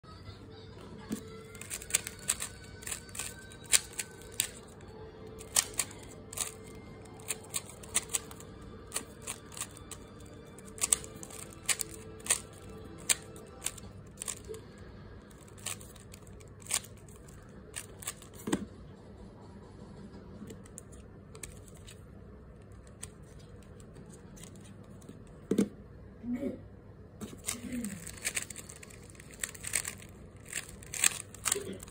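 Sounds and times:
puzzle cube layers clicking: 1.6 - 4.6, 5.4 - 10.0, 10.6 - 14.5, 27.4 - 31.9.

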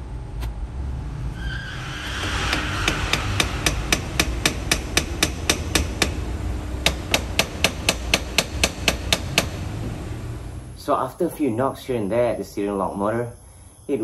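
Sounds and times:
hammer tapping on metal: 2.5 - 6.2, 6.8 - 9.6.

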